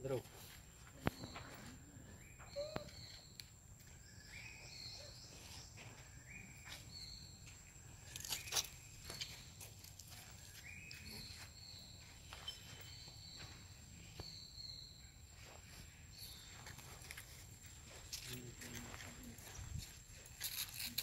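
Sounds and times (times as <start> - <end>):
high stepped bird call: 1.1 - 3.4.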